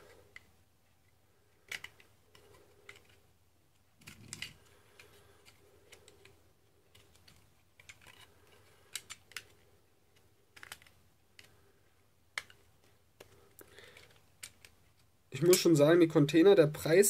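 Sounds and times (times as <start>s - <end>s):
knife blade scraping plastic: 4.0s - 9.6s.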